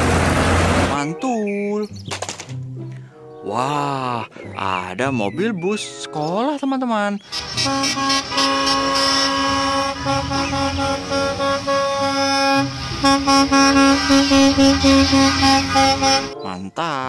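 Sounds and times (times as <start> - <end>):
bus engines rumbling: 0.0 - 1.2, 7.2 - 16.6
bus horns honking: 7.3 - 16.6.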